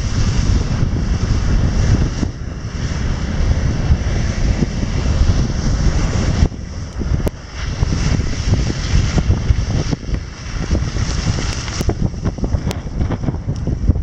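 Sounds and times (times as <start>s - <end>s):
car splashing through water: 0.0s - 13.0s
wind buffeting microphone: 0.0s - 14.0s
tyres on wet gravel: 2.9s - 13.3s.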